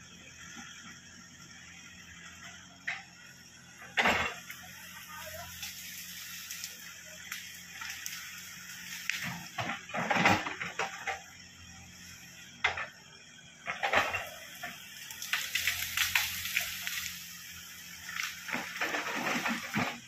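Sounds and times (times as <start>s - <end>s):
heavy machinery engine hum: 0.0s - 20.0s
machinery clanks and knocks: 9.2s - 11.3s.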